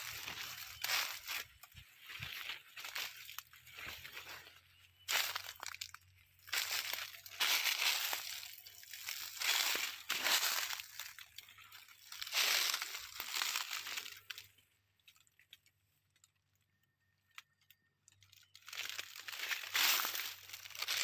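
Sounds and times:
dry leaves crunching: 0:00.0 - 0:14.6, 0:18.3 - 0:21.0.

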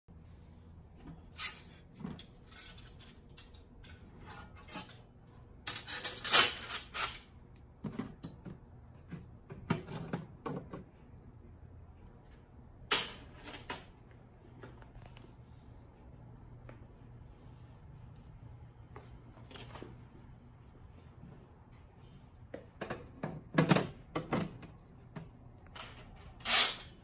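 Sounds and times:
metal clattering and scraping: 0:01.2 - 0:05.0.

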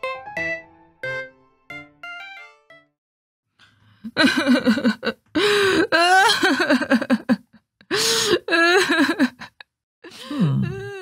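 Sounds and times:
woman wailing and sobbing: 0:04.2 - 0:09.5.

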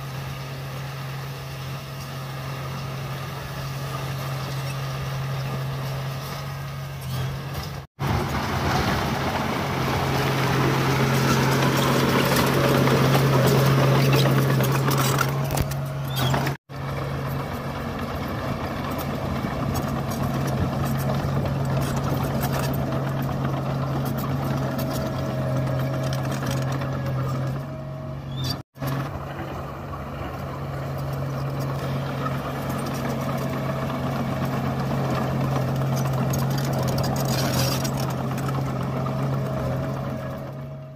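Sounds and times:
bulldozer diesel engine under load: 0:00.0 - 0:40.9
tracks grinding on stone: 0:10.4 - 0:16.6, 0:35.0 - 0:39.6.

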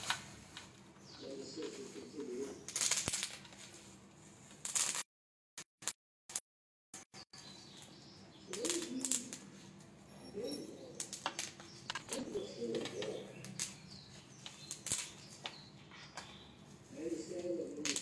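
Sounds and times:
bird cooing: 0:01.0 - 0:02.7, 0:08.4 - 0:13.5, 0:15.9 - 0:18.0.

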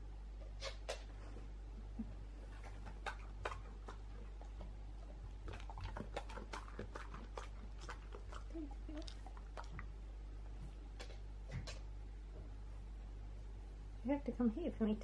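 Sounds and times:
faint steady hum: 0:00.0 - 0:15.0
dog chewing treat crunches: 0:05.3 - 0:09.9.

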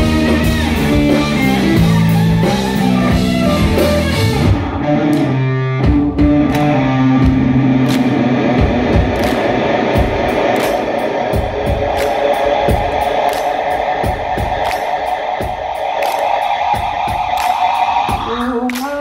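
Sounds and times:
drums steady beat: 0:00.0 - 0:04.8, 0:05.8 - 0:19.0
electric guitar: 0:00.0 - 0:19.0.

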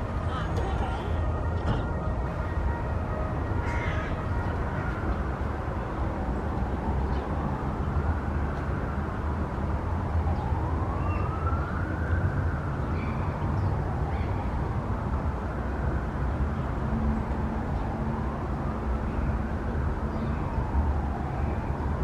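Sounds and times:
siren wailing: 0:00.0 - 0:08.2, 0:09.9 - 0:14.9.

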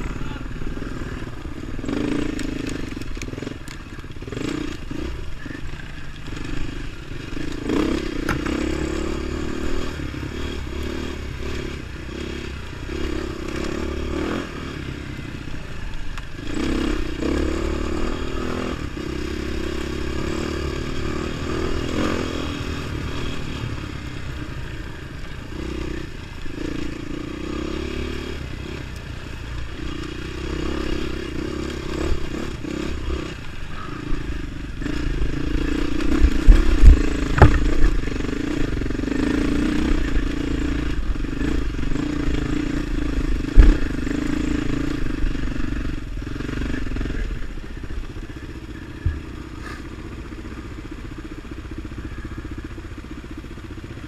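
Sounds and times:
dirt bike engine revving: 0:00.0 - 0:51.0
bike clattering and knocking: 0:36.8 - 0:38.0.

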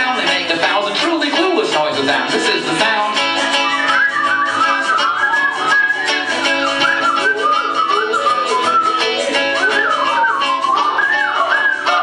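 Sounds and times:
rock band playing: 0:00.0 - 0:12.0
warbling whistle chirps: 0:03.4 - 0:12.0.

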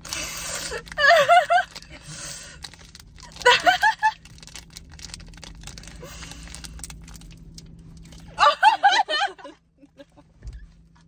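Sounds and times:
plastic packet crinkling: 0:00.0 - 0:08.4.

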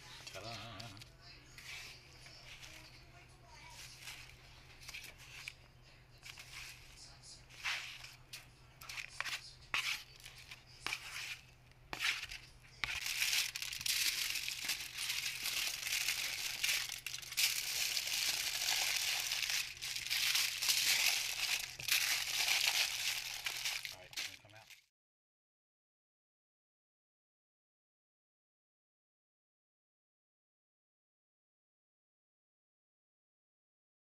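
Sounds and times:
aluminium foil crinkling: 0:00.1 - 0:03.0, 0:03.6 - 0:05.6, 0:06.2 - 0:24.9.

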